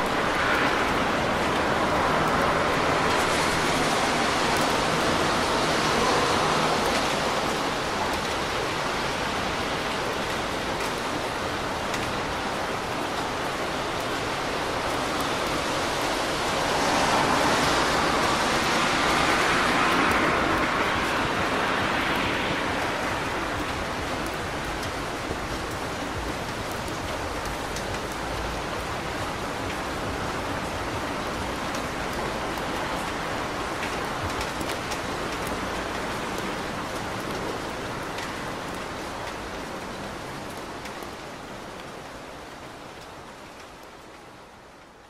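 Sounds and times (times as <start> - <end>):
steady rain on street: 0.0 - 45.0
car tyres hissing on wet road: 0.1 - 8.0, 14.4 - 27.3.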